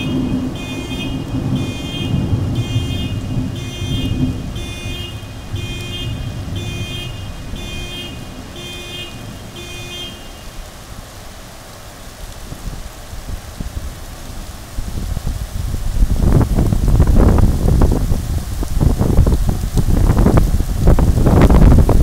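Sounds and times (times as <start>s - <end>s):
vehicle alarm pulsing: 0.0s - 10.5s
heavy wind-driven rain: 0.0s - 22.0s.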